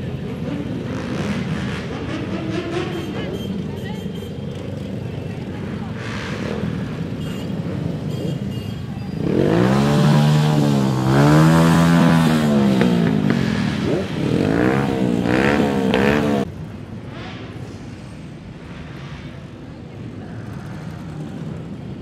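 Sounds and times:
motorcycle engine revving: 0.0 - 3.7, 4.5 - 16.5
motorcycles riding past: 0.0 - 17.6
street and crowd noise: 0.0 - 22.0.

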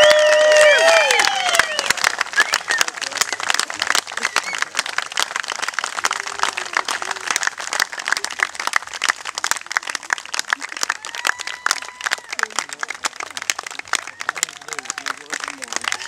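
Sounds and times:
crowd applauding: 0.0 - 16.0
faint voices: 0.0 - 16.0.

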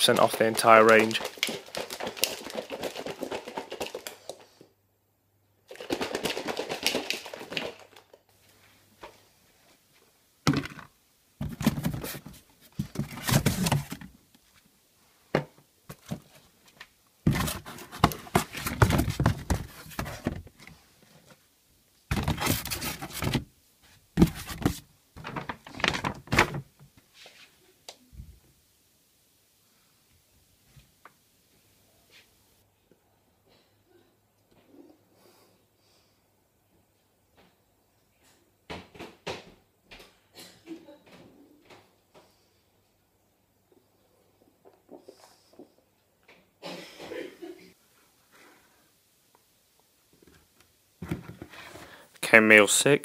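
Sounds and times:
items knocking in cupboard: 10.5 - 14.1, 17.3 - 20.7, 22.1 - 23.4, 24.2 - 26.7, 51.0 - 51.6.

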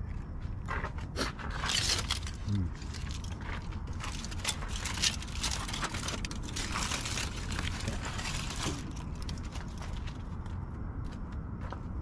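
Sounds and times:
rustling and crinkling packaging: 1.4 - 10.5.

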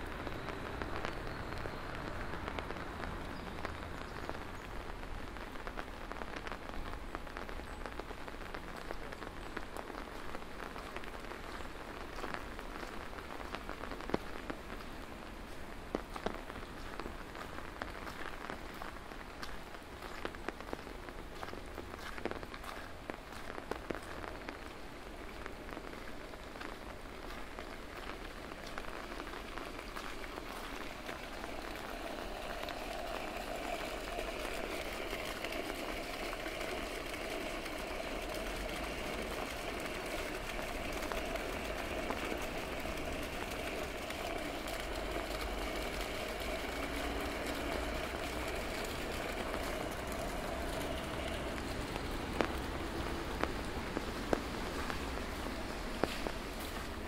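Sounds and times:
rain on a street: 0.0 - 57.0
vehicle humming with a whine: 31.8 - 57.0.

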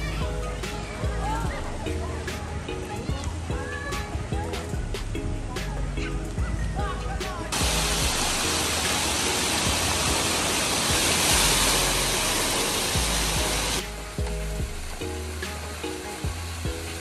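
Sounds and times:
background music: 0.0 - 17.0
water dumping and splashing: 7.5 - 17.0.

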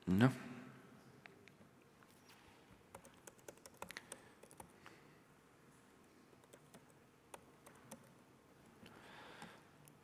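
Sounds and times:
computer keyboard typing: 2.9 - 4.8, 6.4 - 8.2.

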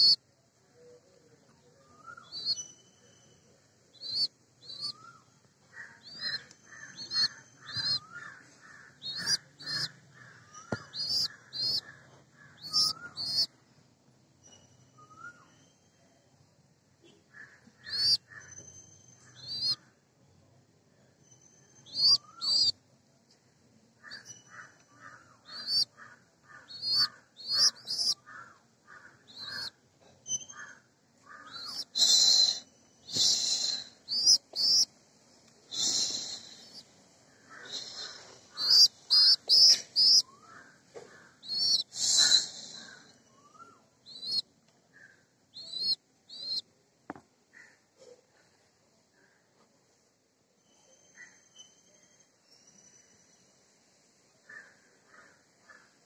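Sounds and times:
pigeon squabs peeping: 2.2 - 2.8, 4.0 - 5.1, 5.8 - 13.5, 17.8 - 18.5, 19.4 - 19.8, 21.9 - 22.7, 25.5 - 25.9, 26.6 - 28.4, 29.3 - 29.7, 31.3 - 34.9, 35.7 - 36.9, 37.5 - 43.0, 44.1 - 44.4, 45.6 - 46.6.

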